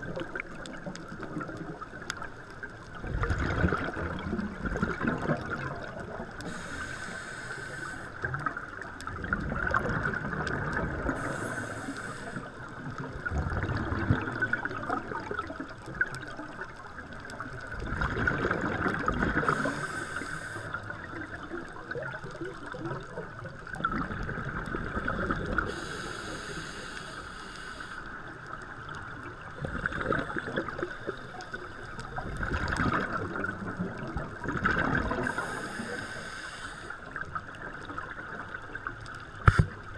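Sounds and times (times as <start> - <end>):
exhaled bubbles rumbling: 0.0 - 6.8, 8.2 - 25.9, 28.3 - 36.0
regulator inhale hiss: 6.4 - 8.4, 11.1 - 12.8, 19.4 - 21.0, 25.6 - 28.4, 29.6 - 32.1, 35.1 - 37.2.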